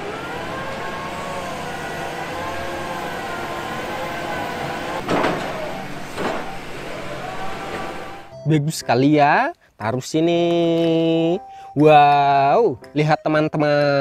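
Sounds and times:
diesel engine and hydraulics whine: 0:00.0 - 0:08.5.

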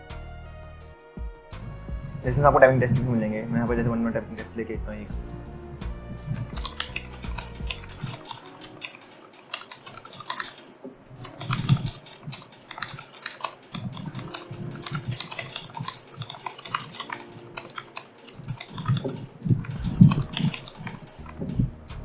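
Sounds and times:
fast typing on keyboard: 0:06.1 - 0:21.8.

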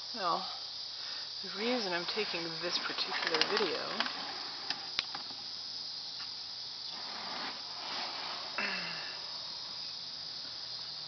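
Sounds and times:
high-pitched hiss: 0:00.0 - 0:11.0
faint rustling: 0:06.8 - 0:09.8.

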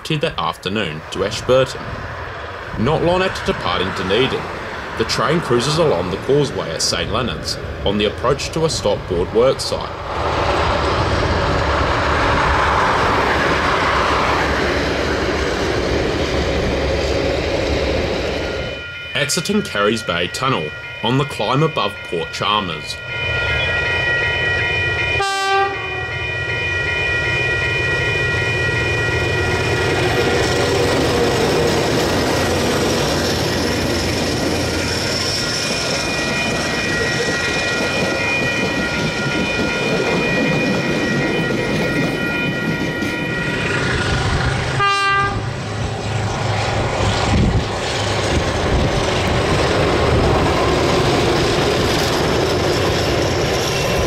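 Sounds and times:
train rumble: 0:00.0 - 0:54.0
locomotive horn: 0:25.1 - 0:26.2, 0:44.7 - 0:45.6.

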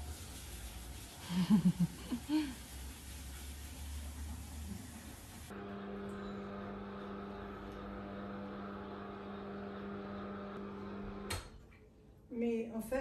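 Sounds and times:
parasol electric motor humming: 0:05.5 - 0:11.4.

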